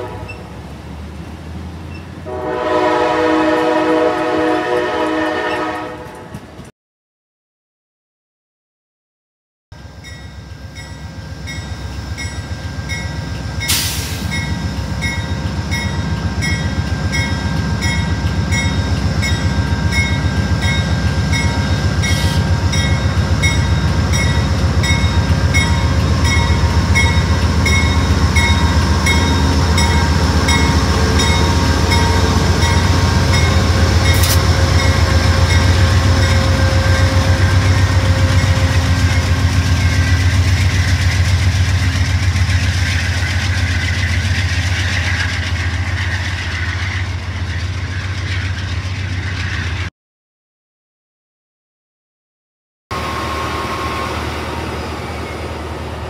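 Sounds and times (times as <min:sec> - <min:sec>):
locomotive bell ringing: 0:09.8 - 0:41.9
diesel locomotive engine running: 0:09.8 - 0:49.9, 0:52.9 - 0:56.0.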